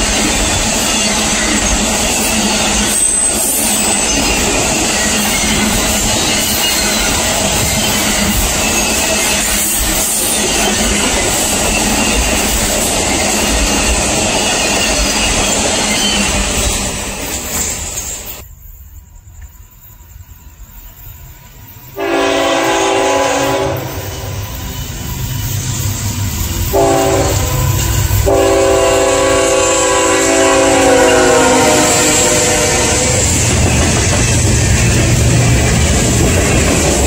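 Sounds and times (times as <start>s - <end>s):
freight cars clattering on rails: 0.0s - 18.4s, 32.2s - 37.0s
train horn blasts: 22.0s - 24.5s, 26.7s - 33.4s.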